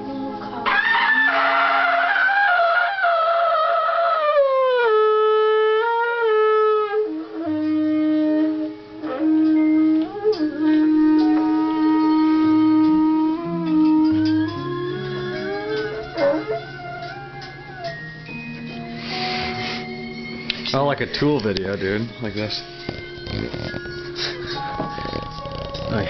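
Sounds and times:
tube blown like a horn: 0.7s - 20.3s.

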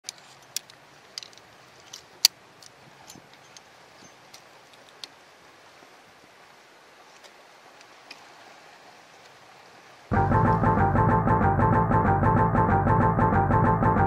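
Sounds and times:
faint steady hiss: 0.1s - 10.6s.

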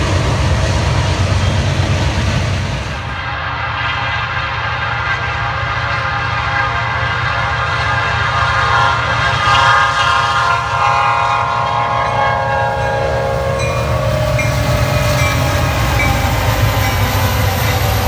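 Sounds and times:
diesel engines rumbling: 0.0s - 3.3s, 9.0s - 18.0s
train air horn: 3.0s - 16.2s.

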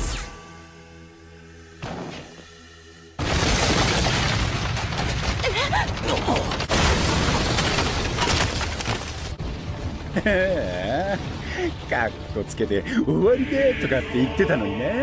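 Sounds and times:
ground shattering and crumbling: 3.2s - 12.3s.

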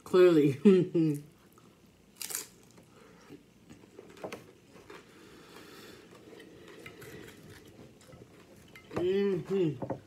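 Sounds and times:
chewing and crunching: 3.7s - 9.0s.

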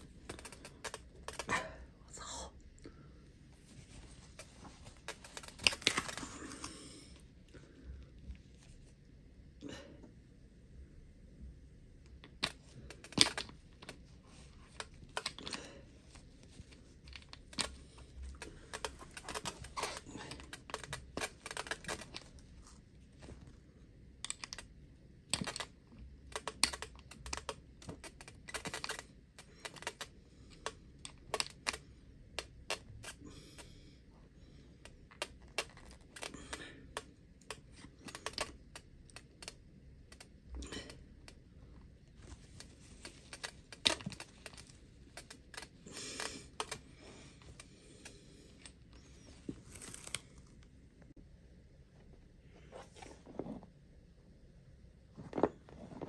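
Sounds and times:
hands handling plastic parts: 3.7s - 6.8s, 12.2s - 23.6s, 24.2s - 31.8s, 34.8s - 50.7s.

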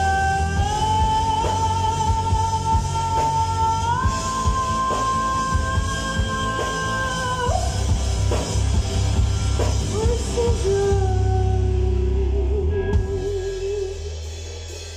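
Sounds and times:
live rock band playing: 0.0s - 14.9s
woman singing long notes: 9.9s - 14.2s.

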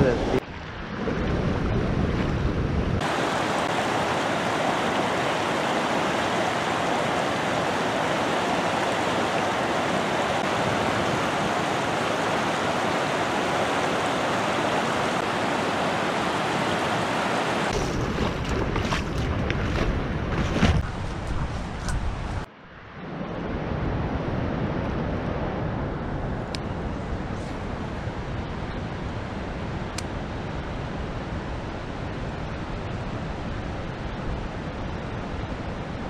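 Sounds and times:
wind buffeting microphone: 0.0s - 36.0s
river water rushing: 3.0s - 20.8s.

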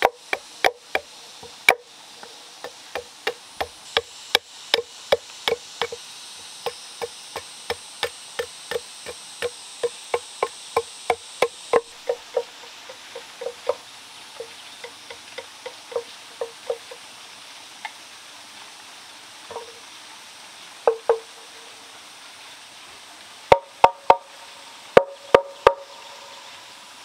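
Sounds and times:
machete chopping wood: 0.0s - 1.8s, 2.6s - 6.0s, 6.6s - 12.5s.

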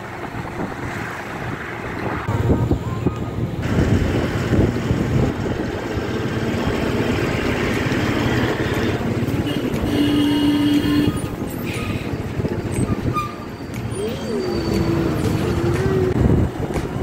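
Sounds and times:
wind on microphone: 0.0s - 7.4s, 9.6s - 17.0s
road and engine noise: 0.0s - 17.0s
vehicle horn: 8.7s - 11.4s.

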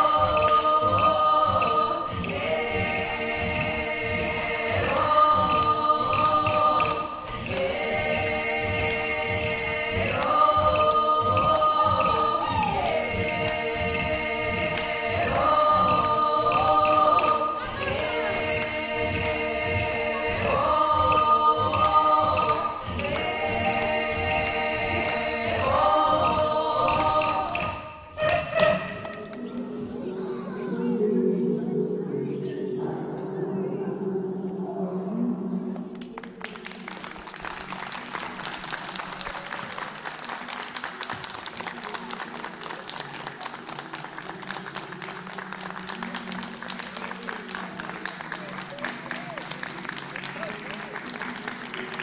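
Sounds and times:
audience clapping: 0.0s - 29.7s, 35.9s - 52.0s
choir singing held chords: 0.0s - 40.1s
low music tones: 0.0s - 52.0s.

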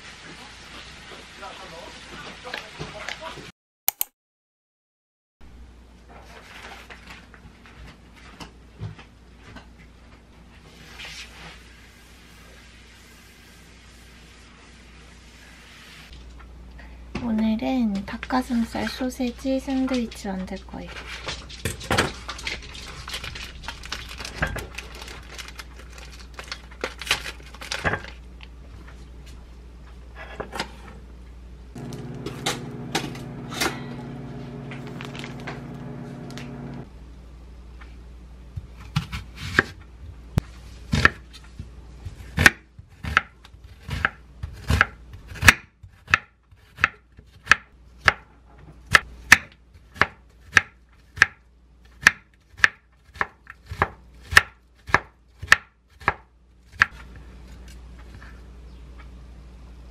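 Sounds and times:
low steady hum: 27.5s - 43.0s
knife chopping on wooden board: 42.1s - 48.3s.

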